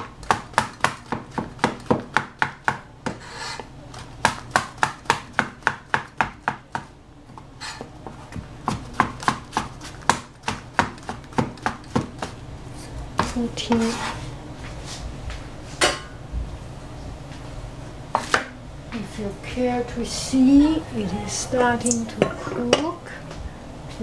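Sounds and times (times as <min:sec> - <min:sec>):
cleaver chopping on cutting board: 0:00.0 - 0:03.6, 0:04.2 - 0:06.9, 0:07.7 - 0:12.4
cleaver scraping board: 0:03.1 - 0:03.7, 0:07.6 - 0:10.0, 0:13.2 - 0:14.3.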